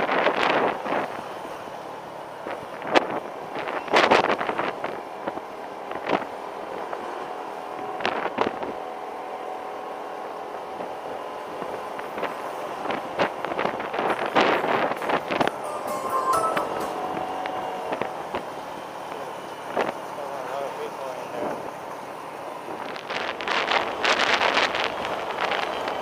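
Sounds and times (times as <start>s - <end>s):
wind noise: 2.4s - 6.5s, 10.8s - 15.6s, 22.5s - 26.0s.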